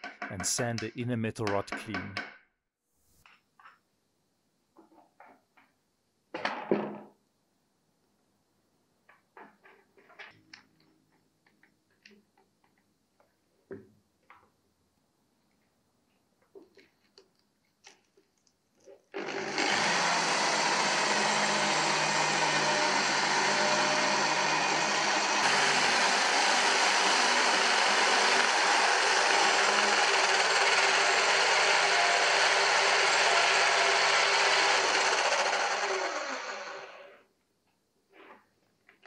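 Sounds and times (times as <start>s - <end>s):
power drill motor whine: 19.2s - 37.2s.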